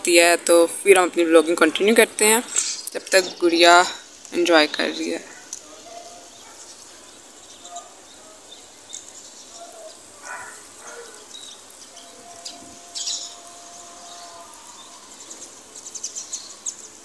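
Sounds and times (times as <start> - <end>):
rain hissing: 0.0 - 17.0
small birds chirping: 0.0 - 17.0
distant call to prayer: 9.5 - 17.0.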